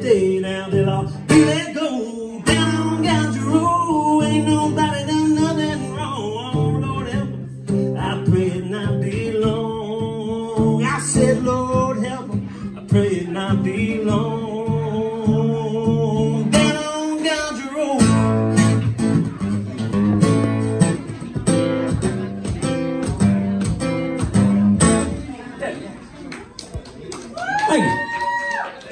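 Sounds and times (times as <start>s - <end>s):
man singing: 0.0s - 18.5s
acoustic guitar strumming: 0.0s - 25.4s.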